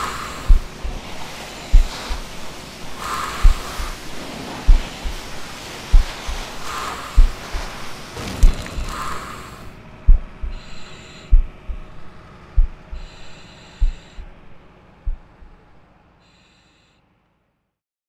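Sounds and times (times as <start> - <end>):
foam nozzle spraying: 0.0 - 9.8
slow thumping soundtrack: 0.0 - 15.8.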